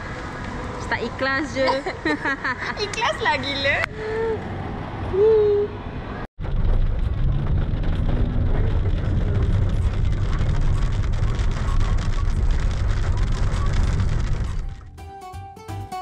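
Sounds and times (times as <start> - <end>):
car cabin rumble: 6.4 - 15.0
raindrops ticking on glass: 9.2 - 14.9.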